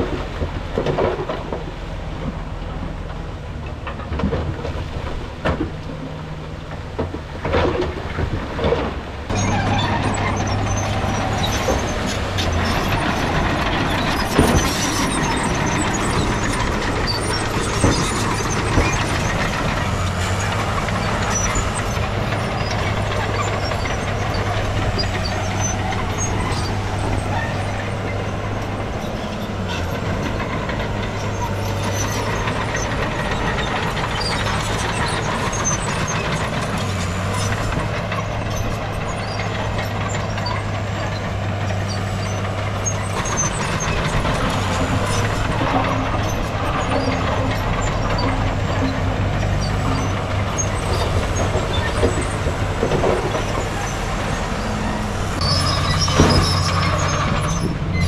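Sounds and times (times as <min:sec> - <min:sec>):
diesel engine hum: 0:00.0 - 0:58.0
metal clanks and rattles: 0:00.0 - 0:58.0.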